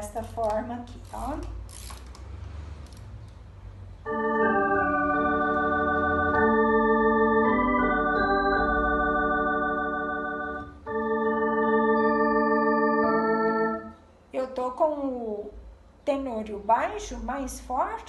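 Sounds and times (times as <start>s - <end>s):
organ playing sustained chords: 4.0s - 14.0s.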